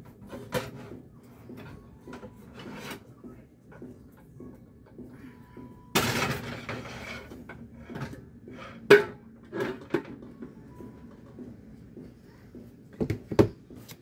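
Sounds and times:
pots and pans clattering: 5.9 - 10.3.

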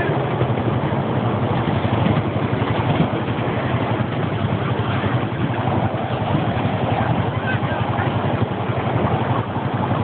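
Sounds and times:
mini train rumbling: 0.0 - 10.0.

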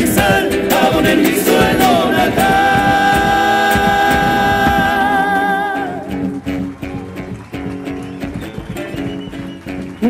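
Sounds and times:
vocal group singing in harmony: 0.0 - 6.1
acoustic guitars: 0.0 - 10.0.

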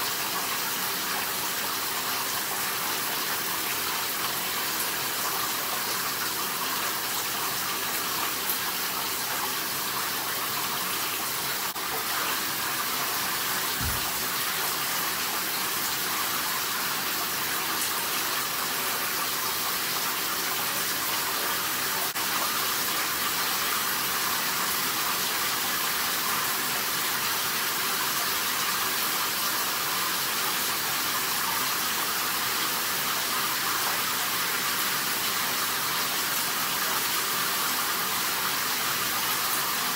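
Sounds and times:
shower water running: 0.0 - 39.9.

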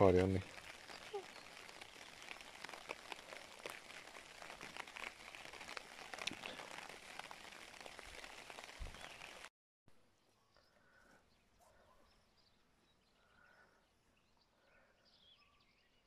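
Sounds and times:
rain hissing: 0.0 - 9.5
raindrop ticks: 0.0 - 9.5.

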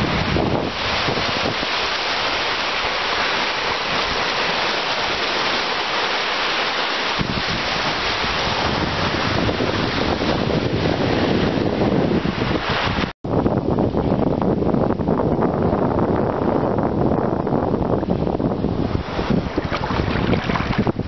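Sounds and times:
wind buffeting microphone: 0.0 - 6.1, 7.0 - 21.0
waves breaking on beach: 0.0 - 13.1, 18.0 - 21.0.

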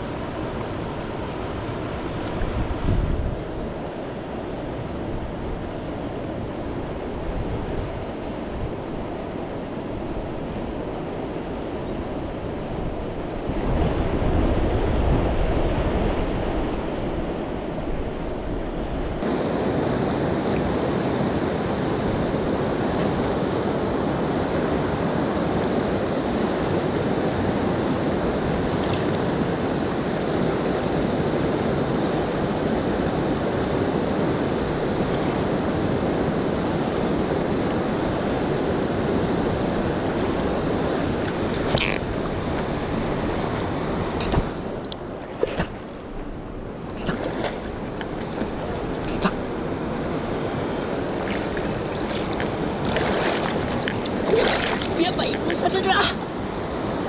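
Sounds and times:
wind on microphone: 0.0 - 57.0
river rushing over rapids: 19.1 - 57.0.

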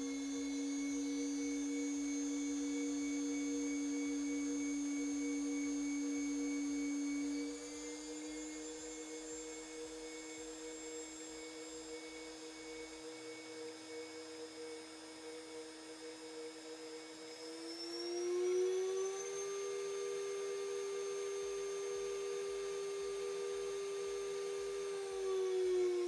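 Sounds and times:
router spindle whining: 0.0 - 13.7.

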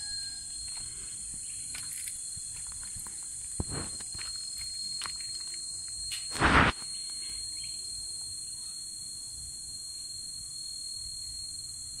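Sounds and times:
high-pitched insect chorus: 0.0 - 12.0
short loud rustle: 6.3 - 6.8.

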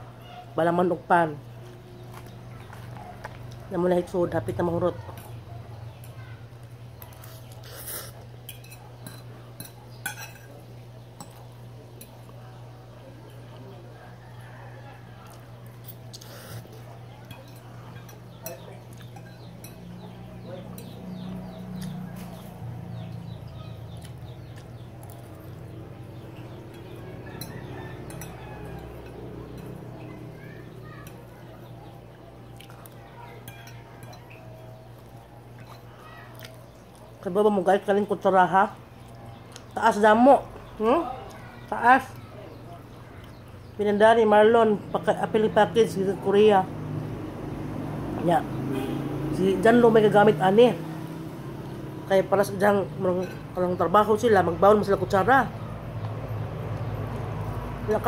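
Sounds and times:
cutlery clinking against a dish: 7.0 - 12.4, 15.8 - 21.2, 26.4 - 31.3, 32.6 - 36.5.

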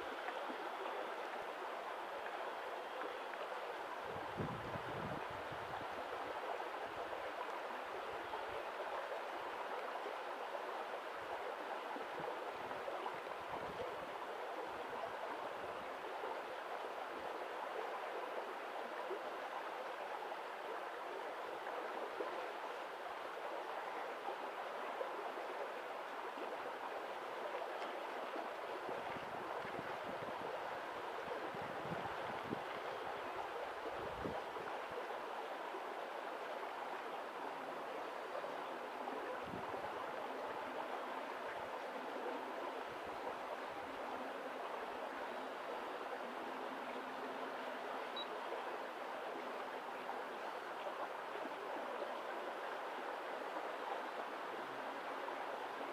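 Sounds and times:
running water rushing: 0.0 - 55.9.

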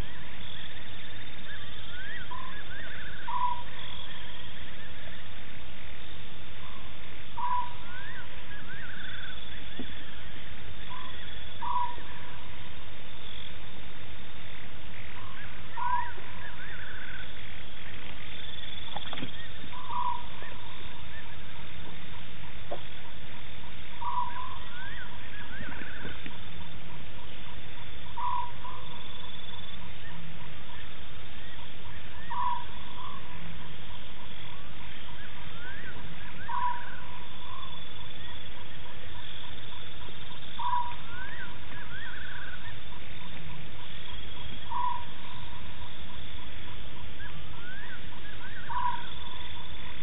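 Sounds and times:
steady background hiss: 0.0 - 50.0
animal calling: 24.0 - 50.0.

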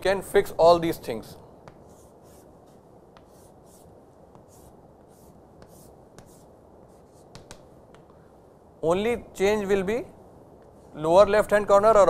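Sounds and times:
chalk scratching on chalkboard: 1.6 - 8.1
chalk clicking on board: 1.6 - 8.2.

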